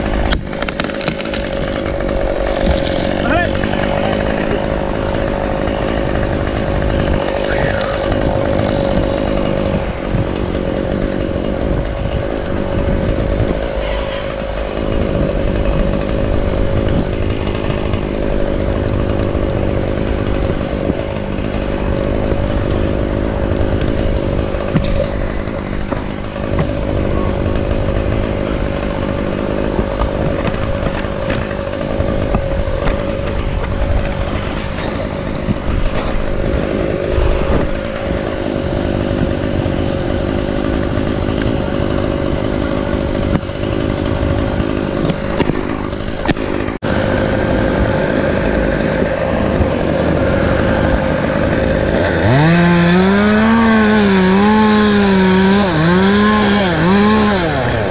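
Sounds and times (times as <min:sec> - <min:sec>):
chainsaw running: 0:00.0 - 0:57.9.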